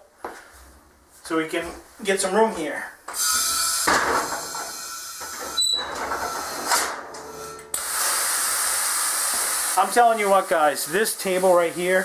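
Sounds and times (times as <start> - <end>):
air hissing from lift table: 6.1 - 9.8.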